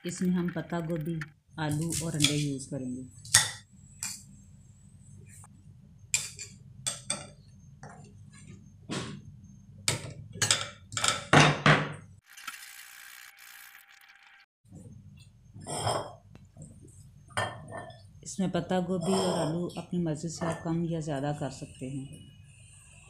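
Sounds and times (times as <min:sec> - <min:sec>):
dishes and utensils clinking: 0:09.9 - 0:11.7.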